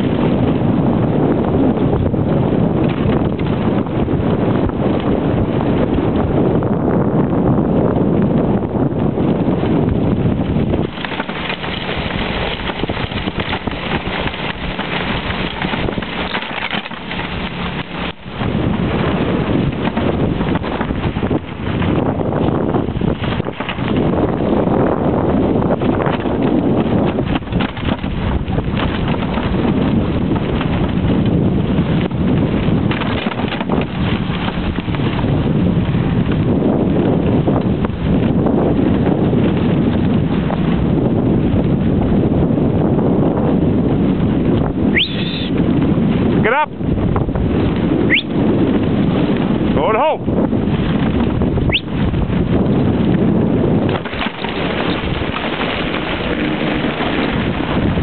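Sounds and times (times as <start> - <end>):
wind buffeting microphone: 0.0 - 58.0
dog sled scraping on snow: 9.2 - 46.4, 47.4 - 58.0.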